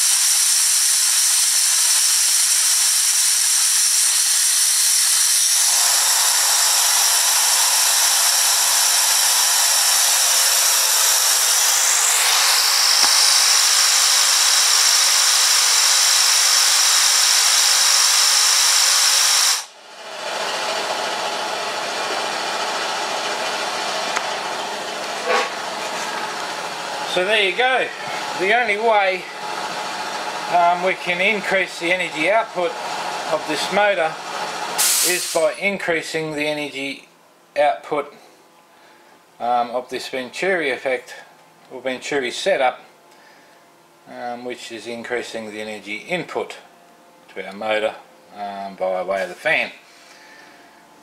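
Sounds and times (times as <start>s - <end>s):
compressed air hissing and whistling: 0.0s - 19.8s, 34.7s - 35.6s.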